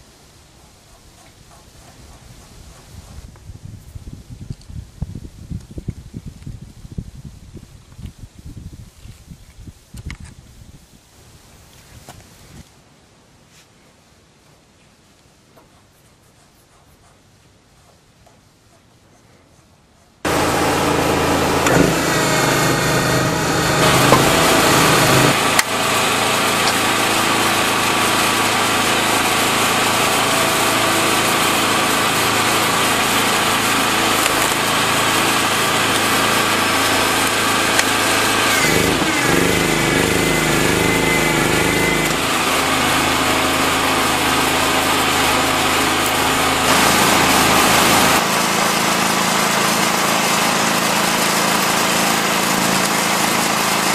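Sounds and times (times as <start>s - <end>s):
hydraulic log splitter humming: 20.3s - 53.9s.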